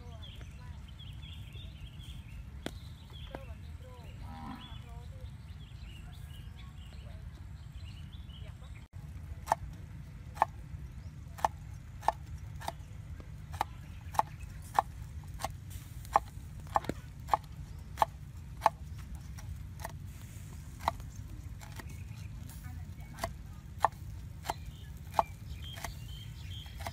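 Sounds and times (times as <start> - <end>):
steady low rumble: 0.0 - 26.9
cleaver chopping on wooden board: 11.3 - 22.5, 23.1 - 26.9.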